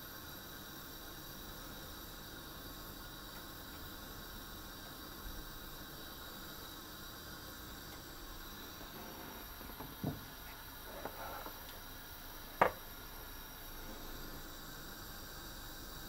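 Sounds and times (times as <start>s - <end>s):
utensil scraping: 10.5s - 11.7s.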